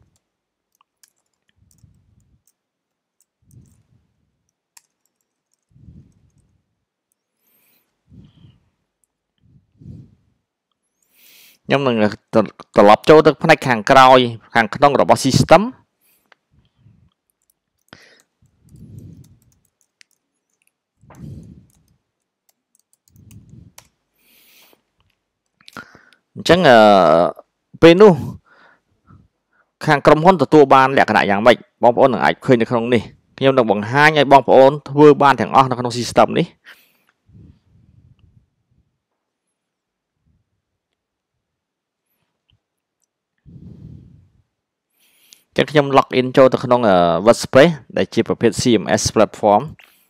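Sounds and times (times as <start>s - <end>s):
keyboard and mouse clicks: 0.0s - 7.2s, 17.1s - 24.0s.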